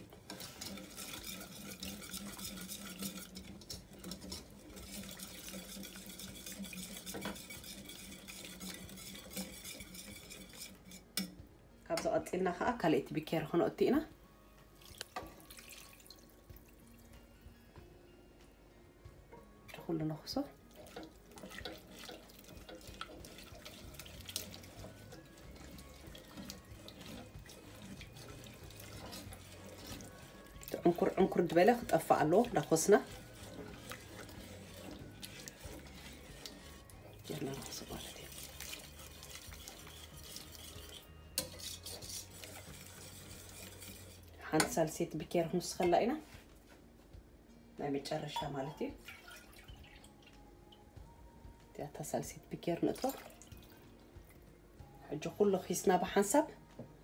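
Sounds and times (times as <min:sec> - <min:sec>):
whisk scraping a saucepan: 0:00.0 - 0:11.3, 0:19.9 - 0:46.4.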